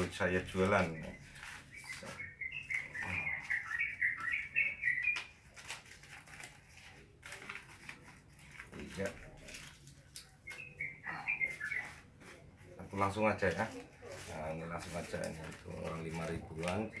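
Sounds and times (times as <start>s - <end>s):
banknotes rustling: 0.0s - 17.0s
small bird chirping: 0.6s - 5.7s, 10.4s - 12.0s.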